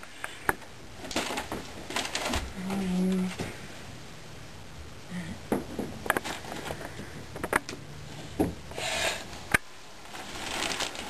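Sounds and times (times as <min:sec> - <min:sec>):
objects knocking and clicking: 0:05.5 - 0:07.8.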